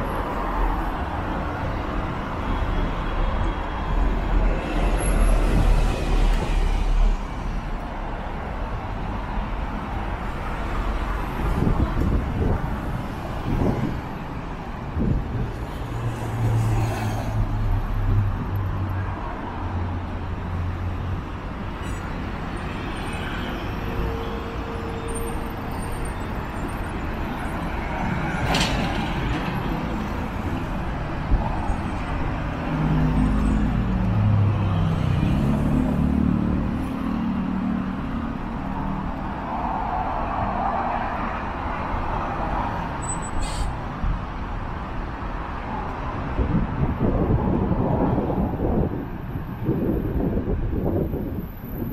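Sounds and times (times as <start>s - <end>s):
cars driving past: 25.4s - 51.9s
brief hiss: 43.4s - 43.8s.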